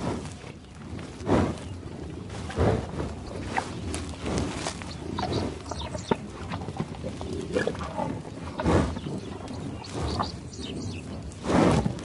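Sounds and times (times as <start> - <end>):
bison vocalizing: 2.4 - 12.0.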